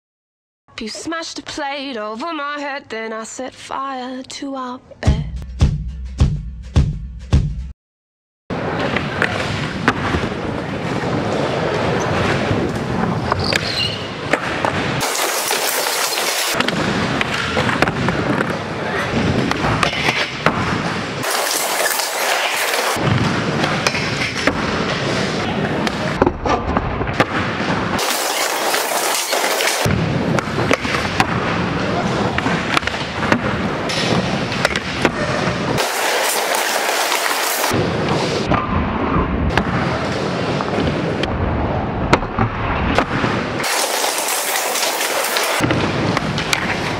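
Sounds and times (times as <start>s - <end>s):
skateboard wheels rumbling on concrete: 8.5s - 46.9s
skateboard clicks and knocks: 8.8s - 23.0s, 23.6s - 31.4s, 32.0s - 37.8s, 42.1s - 46.9s
thin hiss: 21.2s - 23.0s.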